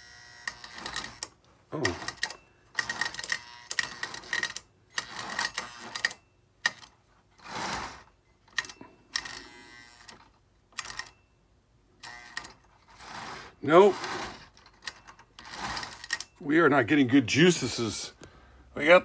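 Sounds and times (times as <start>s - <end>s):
toy train motor buzzing: 0.0s - 6.2s, 7.4s - 8.1s, 9.2s - 10.3s, 12.0s - 16.3s.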